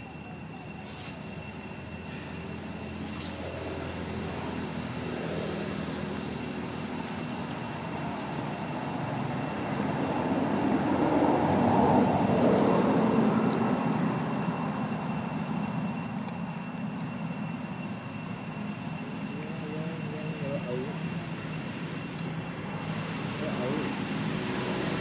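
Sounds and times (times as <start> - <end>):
passing vehicle rumble: 2.5 - 15.6, 22.5 - 25.0.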